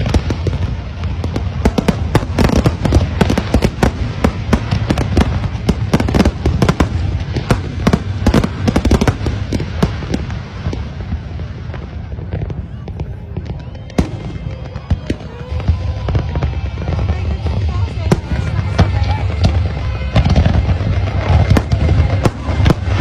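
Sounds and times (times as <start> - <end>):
continuous low rumble: 0.0 - 23.0
fireworks bangs and crackles: 0.0 - 23.0.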